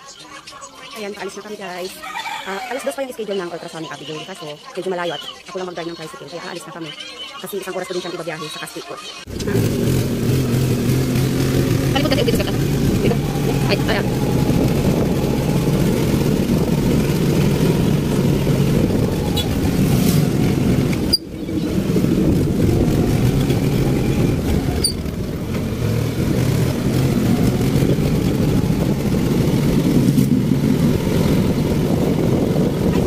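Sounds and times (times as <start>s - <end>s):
motorcycle engine running: 9.3s - 33.0s.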